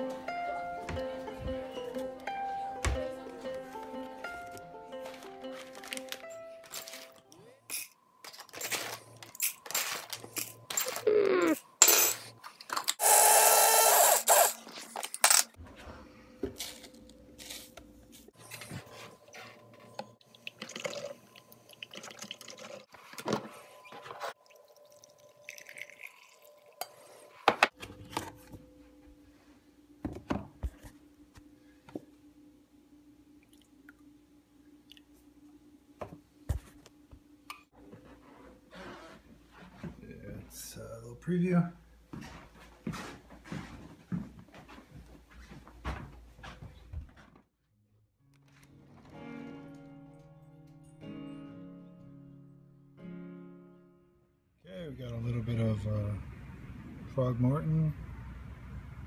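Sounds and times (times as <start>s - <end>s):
electric coffee grinder running: 13.0s - 14.6s.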